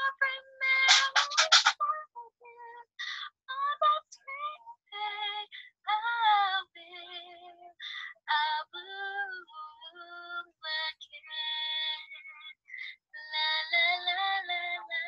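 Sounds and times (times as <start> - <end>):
woman singing la la la: 0.0 - 15.0.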